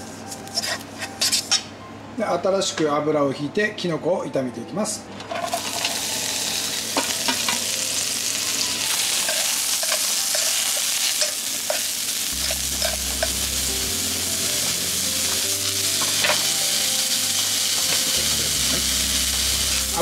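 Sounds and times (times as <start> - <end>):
mushrooms sizzling in oil: 5.4 - 20.0.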